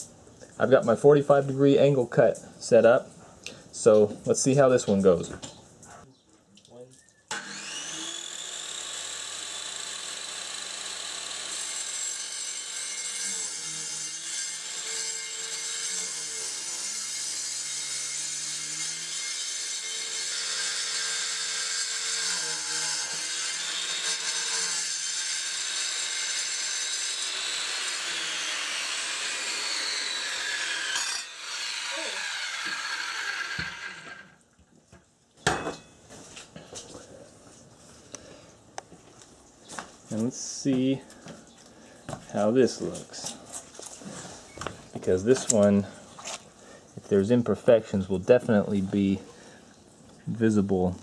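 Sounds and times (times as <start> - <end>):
circular saw cutting stone: 7.3 - 34.4.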